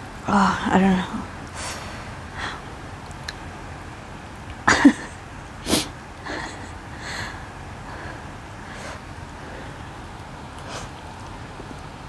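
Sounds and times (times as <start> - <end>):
person sniffing and breathing sharply: 1.6 - 2.1, 5.6 - 9.8, 10.6 - 11.0.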